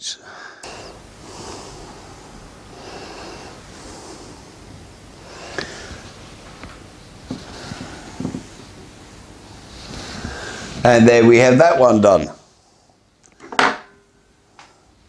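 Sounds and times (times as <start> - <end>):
man breathing through nose: 0.2 - 10.8.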